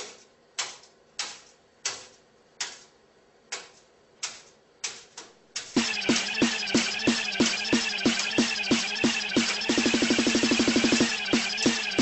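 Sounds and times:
electronic music with beat: 5.6 - 12.0.

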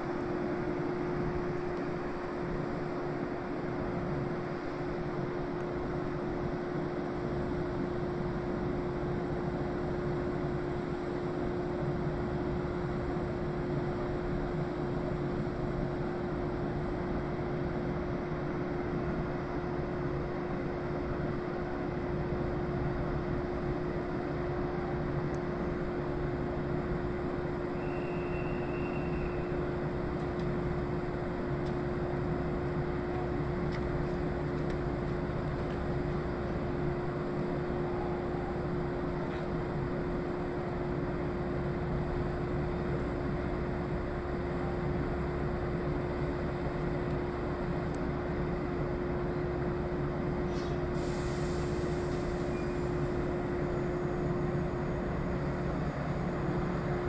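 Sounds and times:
electric train equipment humming: 0.0 - 57.0
short faint high beep: 27.7 - 29.5, 52.4 - 53.0.

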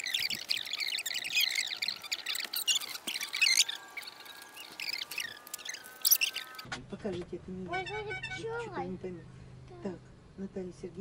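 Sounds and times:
birds singing: 0.0 - 6.7.

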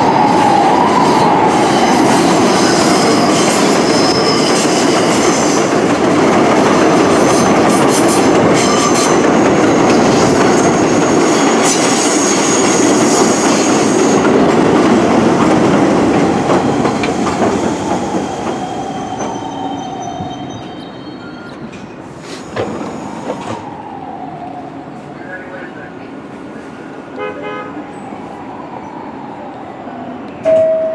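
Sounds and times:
train wheels squealing: 1.7 - 5.7, 7.3 - 14.2, 16.7 - 23.8
wheels clattering on rail: 2.4 - 20.8.

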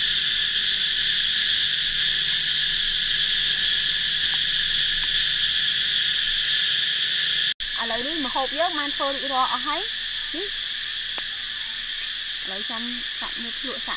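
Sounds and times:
high-pitched insect chorus: 0.0 - 13.9.

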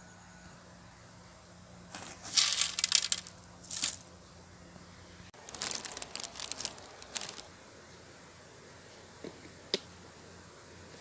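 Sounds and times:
corn grits rustling and crunching: 1.9 - 4.1, 5.4 - 7.5.

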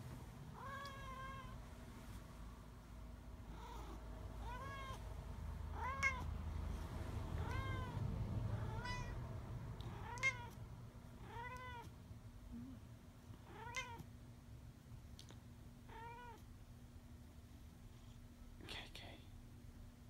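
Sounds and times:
cat meowing: 0.6 - 1.6, 3.5 - 5.0, 5.7 - 6.3, 7.4 - 9.2, 9.8 - 10.6, 11.2 - 11.9, 13.4 - 14.1, 15.9 - 16.5.

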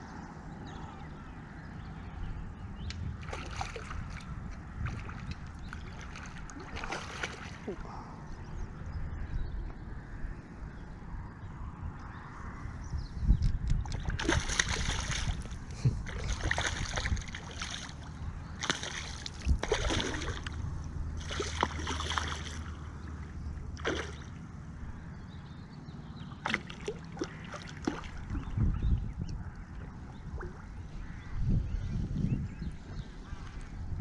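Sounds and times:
fish splashing in water: 3.2 - 7.9, 13.9 - 20.6, 21.2 - 22.8, 23.7 - 24.4, 26.3 - 28.6.

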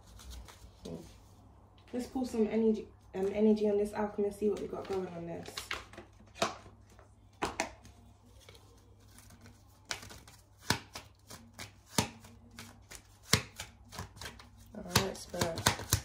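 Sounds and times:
cards rustling while shuffled: 0.0 - 1.2, 4.3 - 16.0
cards snapping: 7.4 - 16.0.

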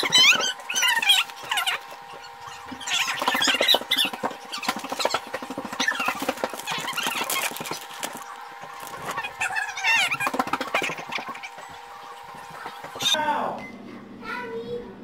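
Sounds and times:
plastic bag crinkling: 4.7 - 10.1.

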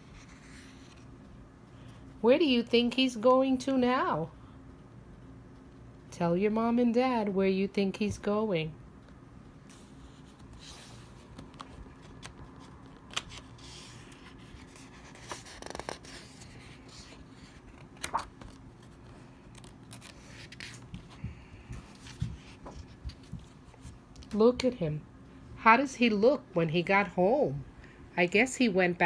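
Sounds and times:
book pages turning: 0.0 - 1.2, 9.6 - 24.4
room hum: 0.0 - 29.0.

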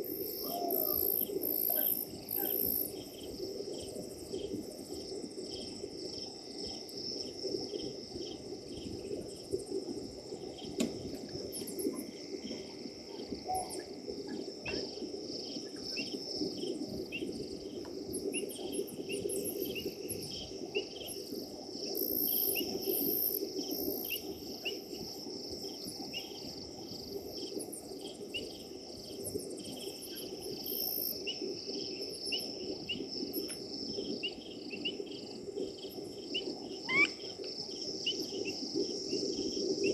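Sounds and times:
high-pitched insect chirps: 0.0 - 2.9
crickets trilling: 0.0 - 39.9.

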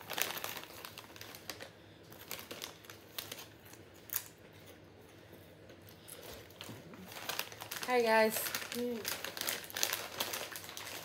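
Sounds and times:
snacks crackling being eaten: 5.7 - 11.0.

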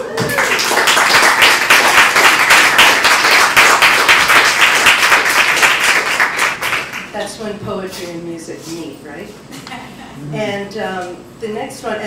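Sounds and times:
audience applause: 0.0 - 7.1.

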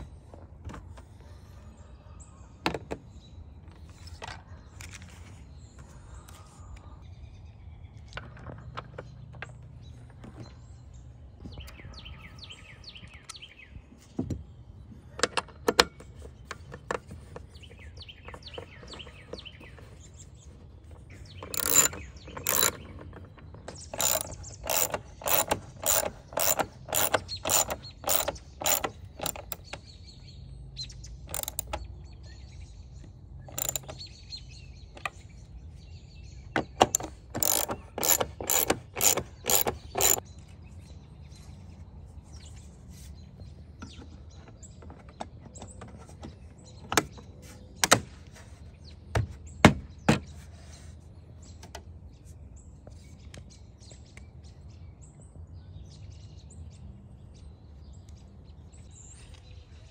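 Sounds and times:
socket wrench ratcheting: 21.2 - 29.9, 31.2 - 31.9, 33.5 - 34.1, 36.6 - 40.2.

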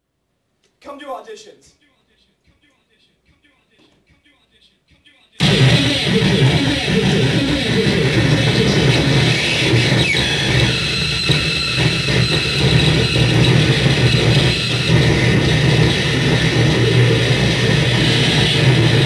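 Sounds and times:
guitar pedal noise drone: 5.4 - 19.0.

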